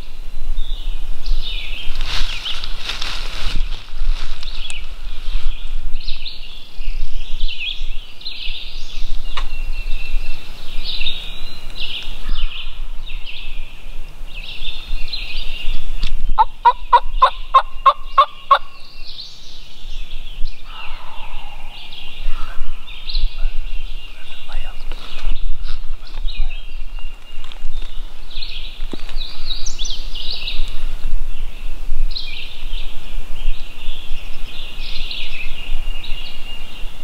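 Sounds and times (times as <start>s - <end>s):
songbirds singing: 0.0s - 37.0s
faint turkey call: 20.7s - 22.9s.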